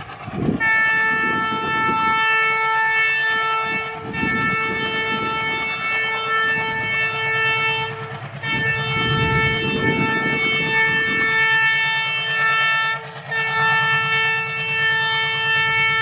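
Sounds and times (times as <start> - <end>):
diesel engine chugging: 0.0 - 16.0
locomotive horn blasts: 0.4 - 16.0.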